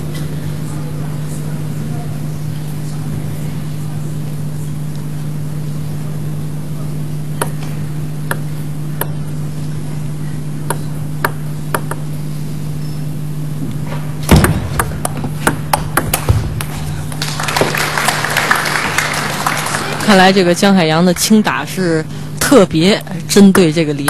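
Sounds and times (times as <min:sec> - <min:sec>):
steady low hum: 0:00.0 - 0:24.0
ping-pong ball clicking: 0:08.3 - 0:09.2, 0:10.6 - 0:12.1.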